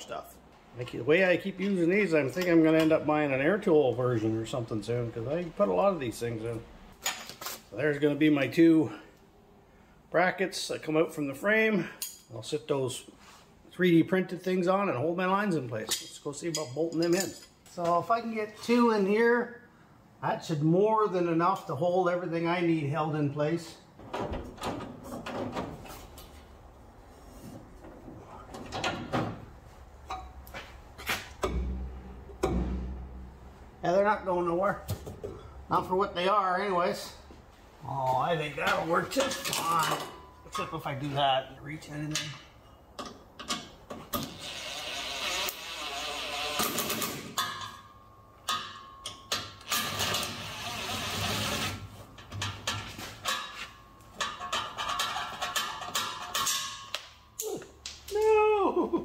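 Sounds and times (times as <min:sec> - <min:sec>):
metal bracket and bolts clinking: 0:15.8 - 0:17.8, 0:38.7 - 0:40.9, 0:52.2 - 0:57.4.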